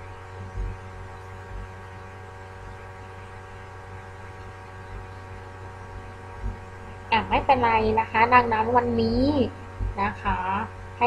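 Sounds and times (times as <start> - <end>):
electrical hum with hiss: 0.0 - 11.0
soft low bumps: 9.8 - 10.5.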